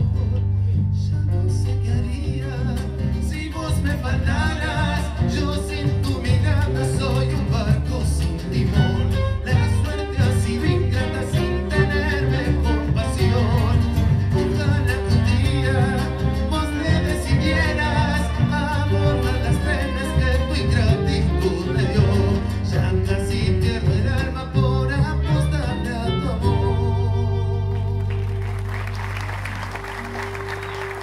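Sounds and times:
live band playing: 0.0 - 31.0
person singing: 1.0 - 28.2.

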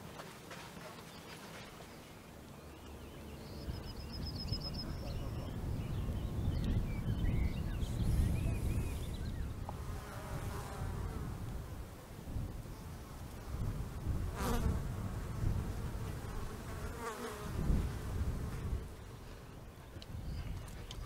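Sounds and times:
small birds chirping: 0.9 - 9.7, 19.0 - 21.0.

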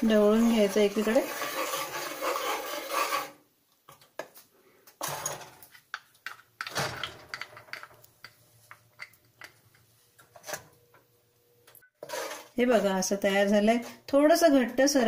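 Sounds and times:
spoon scraping saucepan: 0.1 - 3.4.

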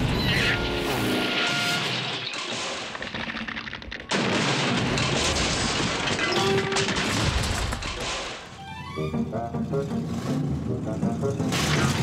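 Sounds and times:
background music: 8.5 - 12.0.

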